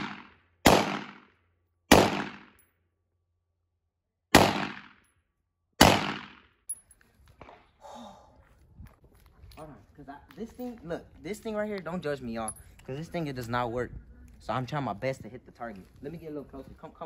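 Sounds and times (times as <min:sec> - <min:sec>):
gunshots with echo: 0:00.0 - 0:01.3, 0:01.9 - 0:02.5, 0:04.3 - 0:05.0, 0:05.8 - 0:06.4.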